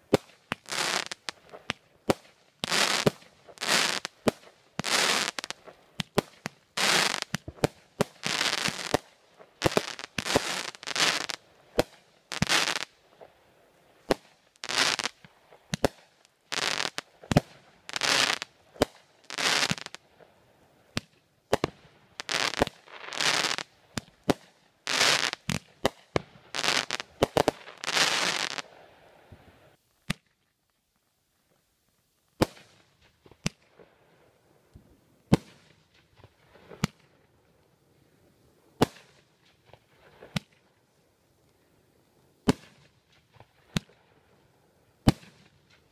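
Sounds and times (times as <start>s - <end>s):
fireworks bangs and bursts: 0.0s - 12.9s, 14.1s - 20.0s, 20.9s - 28.6s, 38.8s - 40.6s, 42.4s - 43.9s, 45.0s - 45.9s.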